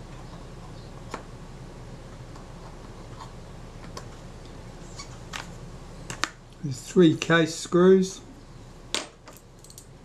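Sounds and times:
small sharp metal clicks: 9.3s - 9.9s.

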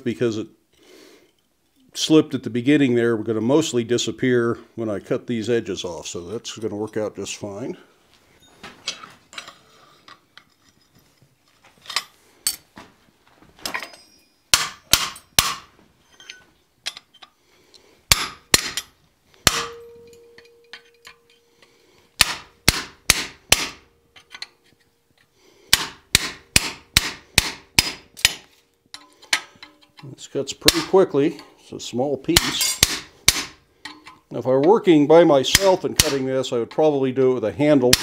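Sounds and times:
steady metallic ring: 13.8s - 15.4s, 18.8s - 21.7s
hammer striking chisel on steel: 13.9s - 15.7s, 18.1s - 21.4s, 22.2s - 24.6s, 25.7s - 30.0s, 30.6s - 31.5s, 32.4s - 34.2s, 35.5s - 36.8s.

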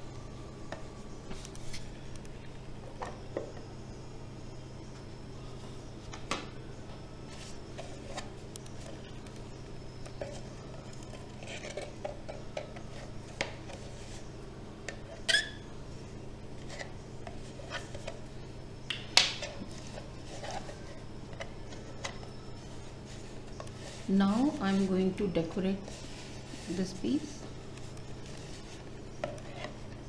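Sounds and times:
steady low hum: 0.0s - 30.0s
squeaky plastic scrape: 10.2s - 12.0s, 15.1s - 15.6s.

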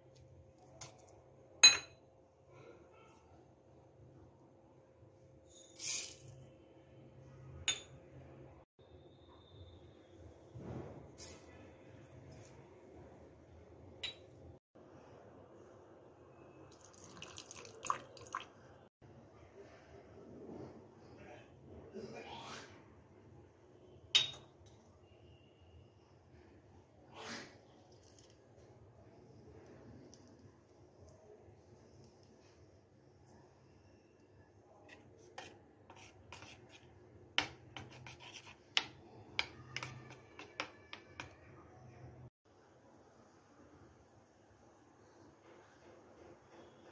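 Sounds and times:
water pouring into steel jar: 16.7s - 18.5s
spoon scraping steel bowl: 34.8s - 41.3s.

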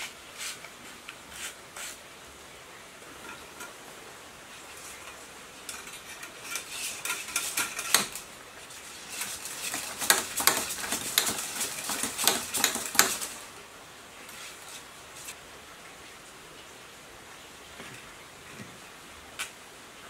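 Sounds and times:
hand-cranked coil winder clicking: 5.1s - 8.3s, 9.0s - 13.4s.

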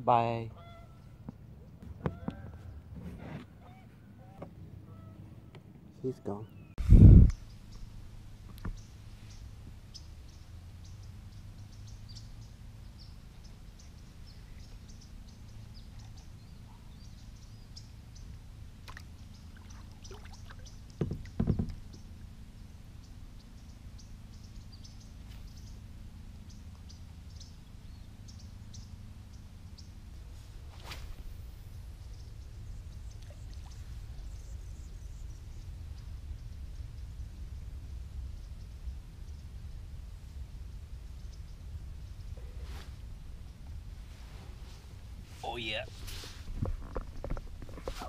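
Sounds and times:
steady low rumble: 6.7s - 20.0s, 21.8s - 48.0s
small faint ticks: 7.2s - 7.8s.

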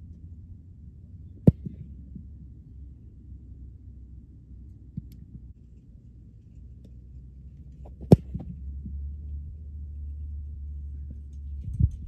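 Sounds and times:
steady low rumble: 0.0s - 12.0s
foot kicking football: 1.4s - 2.4s, 7.8s - 8.6s.

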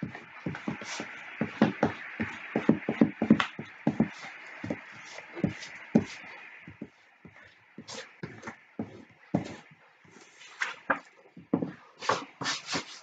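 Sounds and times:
eraser scrubbing on paper: 0.5s - 1.7s, 11.7s - 13.0s.

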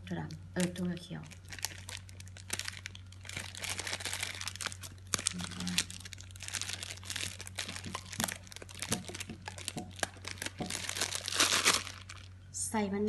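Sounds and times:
plastic bag crinkling: 0.2s - 12.4s.

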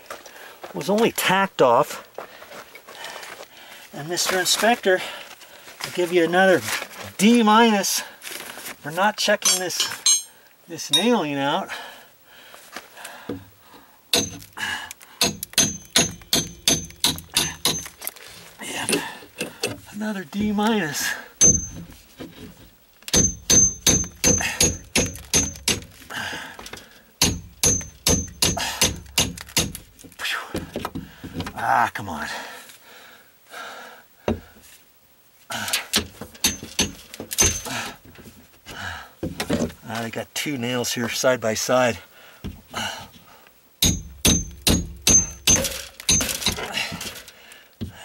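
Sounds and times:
hammer blows with metallic ring: 9.4s - 11.2s, 14.1s - 14.4s, 15.2s - 18.0s, 21.4s - 21.8s, 23.1s - 25.8s, 27.2s - 29.3s, 43.8s - 46.6s.

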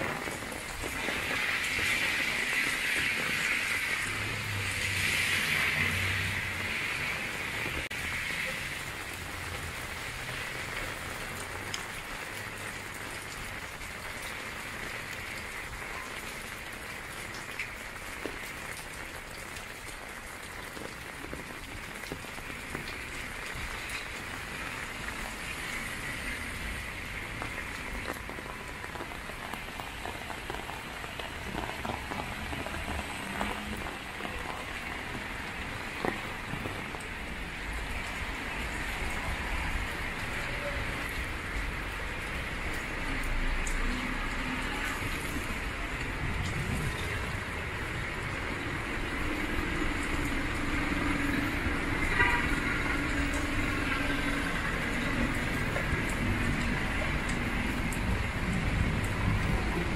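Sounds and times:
heavy rain on pavement: 0.0s - 59.9s
rain on umbrella: 0.0s - 59.9s.

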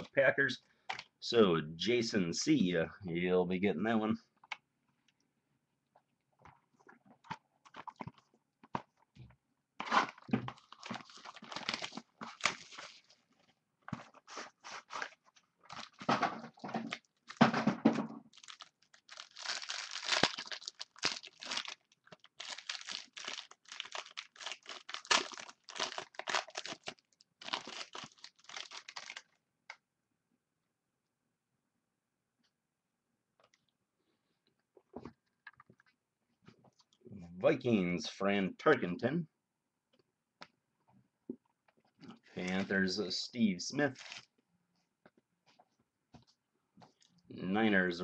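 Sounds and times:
wrappers tearing and crinkling: 9.8s - 13.2s, 14.0s - 17.4s, 18.3s - 29.4s, 43.9s - 44.3s.

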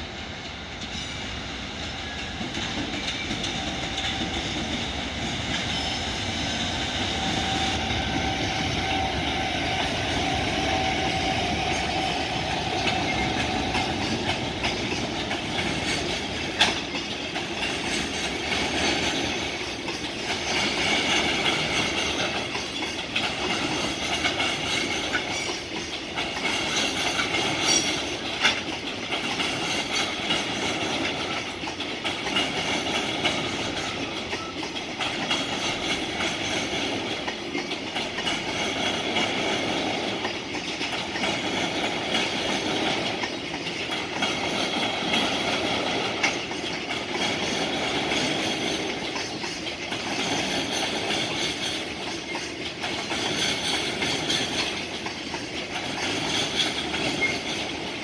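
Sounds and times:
locomotive whine: 0.0s - 26.0s
train wheels rumbling on rails: 0.0s - 58.0s.

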